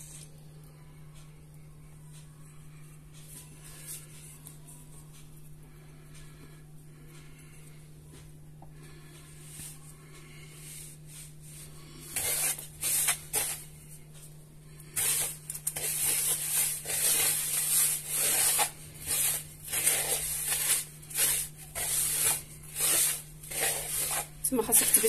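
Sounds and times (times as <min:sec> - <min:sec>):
hand rubbing semolina in bowl: 0:09.3 - 0:14.0, 0:14.8 - 0:25.0.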